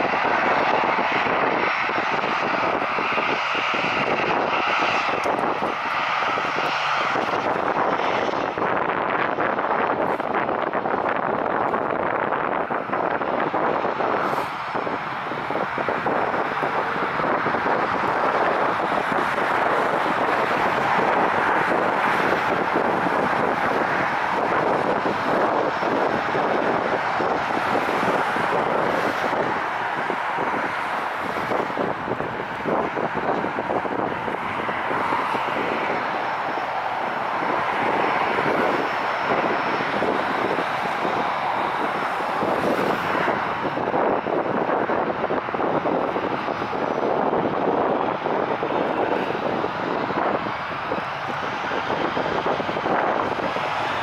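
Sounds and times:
jet engines running: 0.0 - 54.0.

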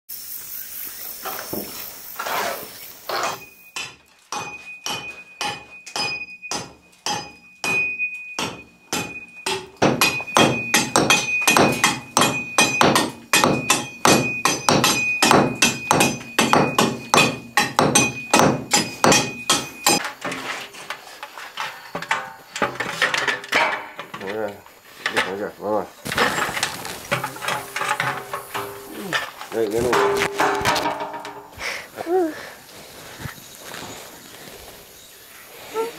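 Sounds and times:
hammer striking concrete block wall: 3.2 - 20.1, 29.8 - 31.5.

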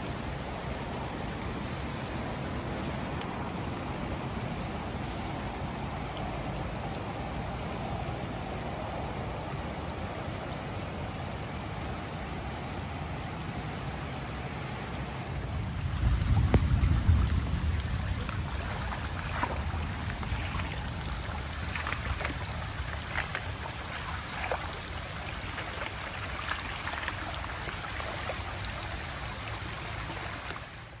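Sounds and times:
water rushing along channel: 0.0 - 31.0
wind rumble on microphone: 0.0 - 31.0
dogs splashing in water: 18.1 - 30.8.

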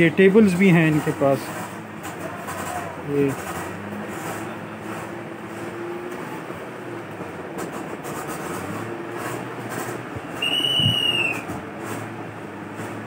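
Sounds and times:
steady background noise: 0.0 - 13.0
high whistle-like tone: 10.4 - 11.5.

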